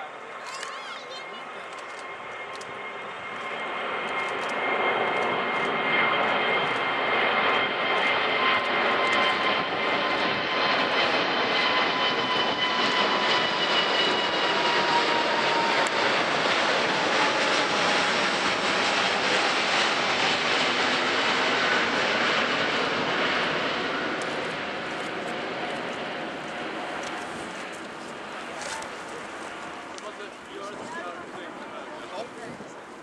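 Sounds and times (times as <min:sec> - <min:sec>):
jet engines roaring overhead: 0:00.0 - 0:33.0.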